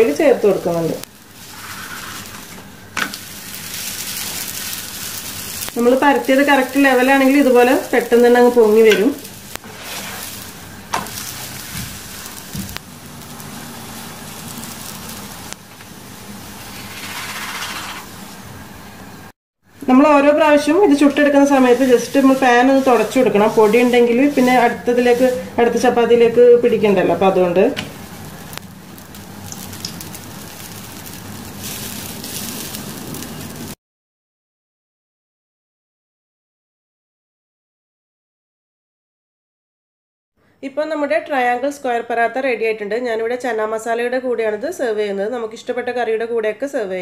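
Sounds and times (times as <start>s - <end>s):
flatbread sizzling in a pan: 0.0s - 18.5s, 20.4s - 33.8s.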